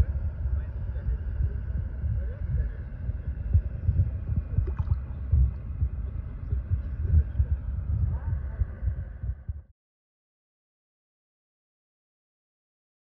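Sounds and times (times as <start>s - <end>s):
wind buffeting microphone: 0.0s - 9.7s.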